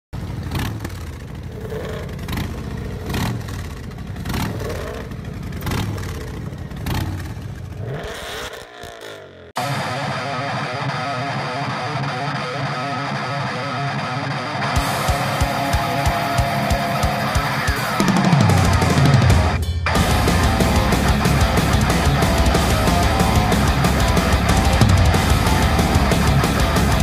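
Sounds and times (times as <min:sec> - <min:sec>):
engine revving: 0:00.2 - 0:27.0
rock music: 0:09.6 - 0:27.0
drum hits: 0:14.8 - 0:27.0
steady beat: 0:14.8 - 0:27.0.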